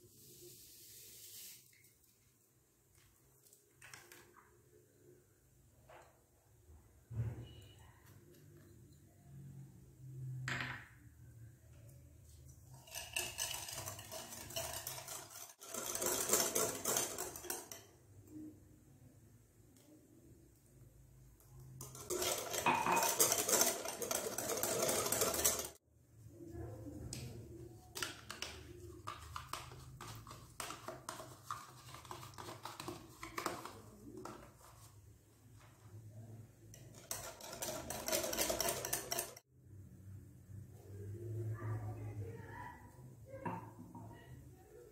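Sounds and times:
wire whisk rattling in glass bowl: 0:12.7 - 0:17.9, 0:21.7 - 0:25.8, 0:36.7 - 0:39.4.

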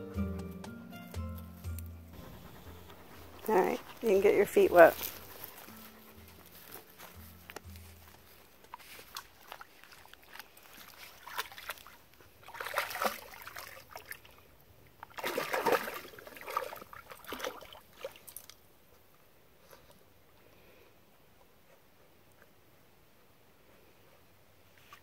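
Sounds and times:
dog splashing in water: 0:08.6 - 0:18.6.

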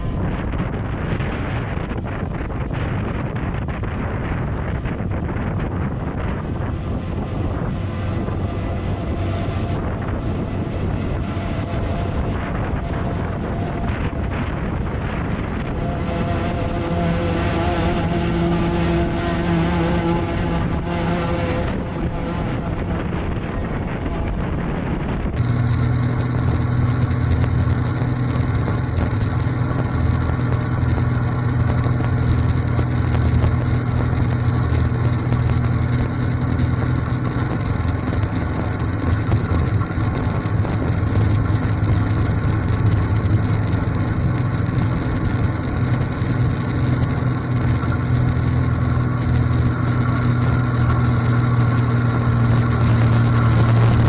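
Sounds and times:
tractor engine droning: 0:00.0 - 0:54.0
wind on microphone: 0:00.0 - 0:54.0.

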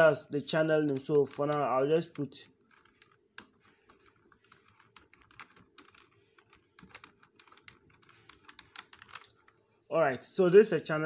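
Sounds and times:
computer keyboard keys clicking: 0:00.9 - 0:09.6.

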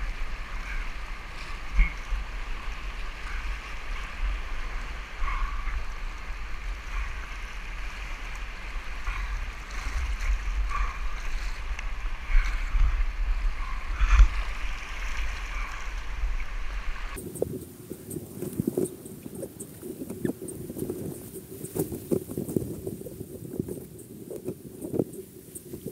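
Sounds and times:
water splashing: 0:00.0 - 0:17.4.

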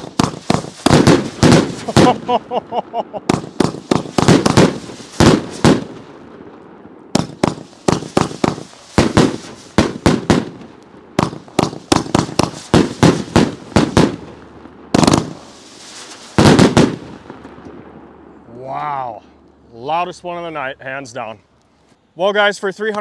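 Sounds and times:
firework bangs: 0:00.0 - 0:18.3.

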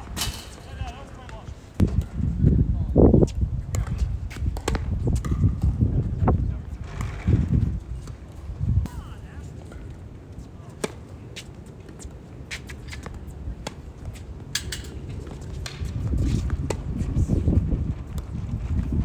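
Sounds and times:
tennis rackets hitting ball: 0:03.7 - 0:05.7
tennis ball bouncing: 0:03.7 - 0:05.8.

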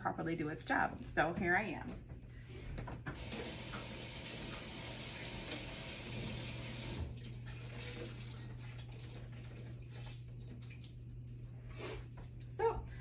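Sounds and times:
water running from a tap: 0:03.1 - 0:11.4.

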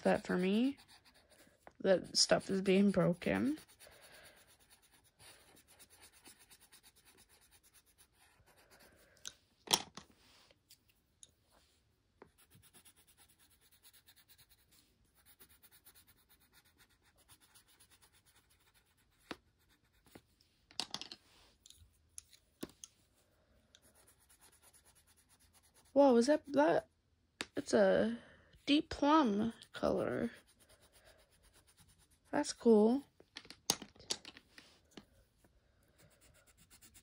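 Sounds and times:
colored pencil scratching on paper: 0:00.0 - 0:09.3, 0:12.2 - 0:20.4, 0:22.3 - 0:26.8, 0:28.6 - 0:33.1, 0:35.4 - 0:37.0.

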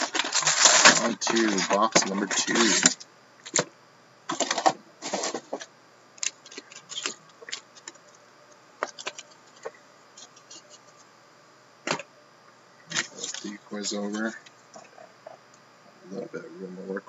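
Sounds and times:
cardboard and foil rustling: 0:00.0 - 0:03.6, 0:04.3 - 0:05.7, 0:06.4 - 0:08.0, 0:12.9 - 0:14.4.

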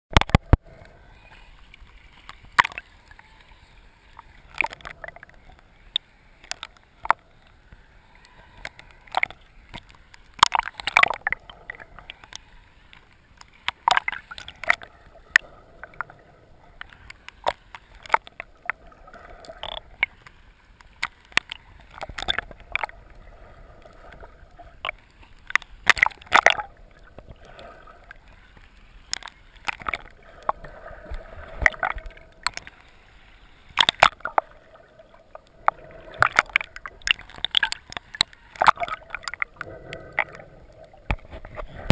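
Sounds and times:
sharp clicks and pops: 0:00.1 - 0:00.6, 0:01.7 - 0:02.9, 0:04.2 - 0:07.2, 0:08.2 - 0:16.2, 0:16.8 - 0:18.8, 0:19.4 - 0:23.0, 0:24.2 - 0:27.4, 0:29.0 - 0:32.8, 0:33.8 - 0:34.5, 0:35.3 - 0:41.9
underwater water sloshing: 0:00.1 - 0:41.9.

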